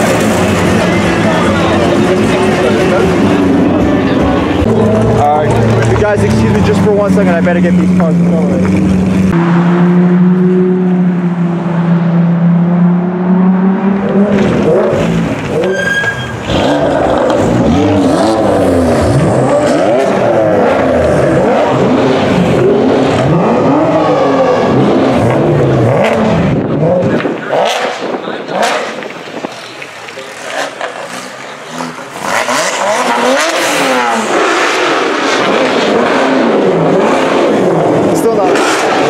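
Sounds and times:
sports car engine idling: 0:00.0 - 0:09.4
sports car engines revving: 0:00.0 - 0:39.0.

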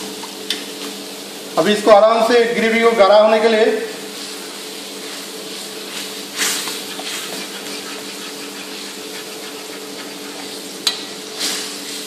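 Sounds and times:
gravy sizzling and bubbling in wok: 0:04.0 - 0:12.0
steady low hum: 0:04.4 - 0:12.0.

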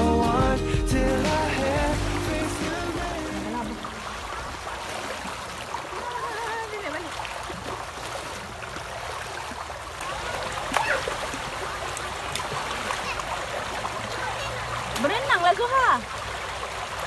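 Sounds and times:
water splashing: 0:00.9 - 0:17.0
river rushing over stones: 0:01.0 - 0:17.0.

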